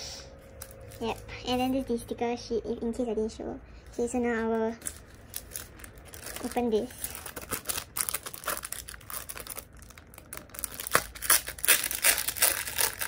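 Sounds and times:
plastic packaging crinkling: 4.8s - 13.0s.

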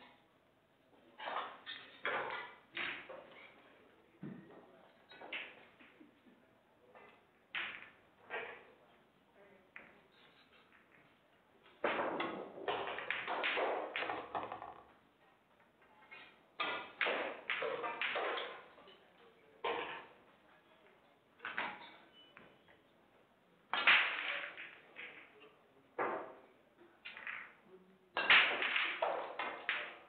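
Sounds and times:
pool balls clacking: 1.2s - 3.6s, 4.2s - 6.0s, 7.0s - 8.8s, 9.8s - 15.0s, 16.1s - 19.0s, 21.4s - 22.1s, 23.7s - 27.6s, 28.2s - 30.0s
ball dropping into pocket: 11.8s - 15.0s.

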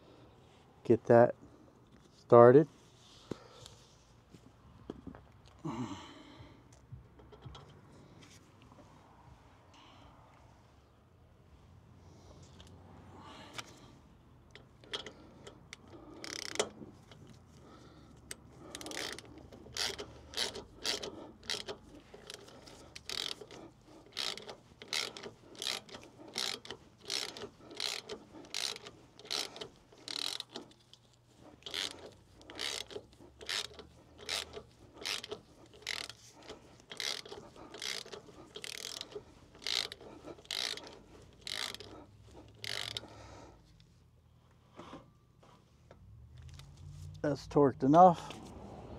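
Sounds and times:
ratchet wrench clicking: 14.5s - 17.4s, 18.2s - 43.1s.

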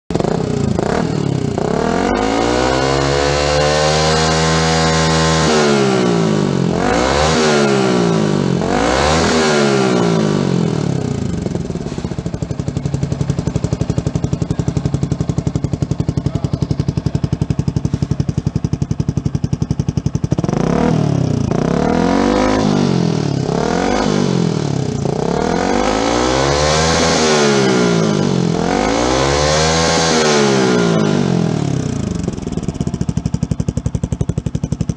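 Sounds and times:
motorcycle engine revving and idling: 0.1s - 34.9s.

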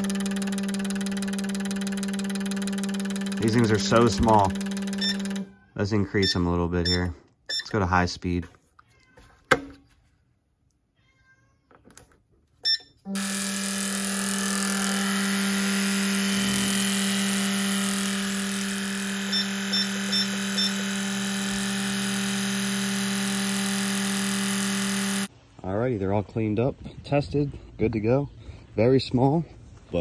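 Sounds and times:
fuel injectors buzzing: 0.0s - 5.5s, 13.1s - 25.3s
tester short beeps: 0.0s - 5.5s, 6.1s - 7.8s, 12.6s - 13.0s.

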